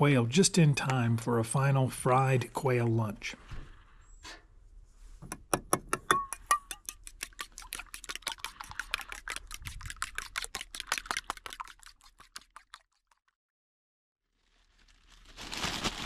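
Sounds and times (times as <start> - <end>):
fork clinking on bowl: 6.1 - 7.2.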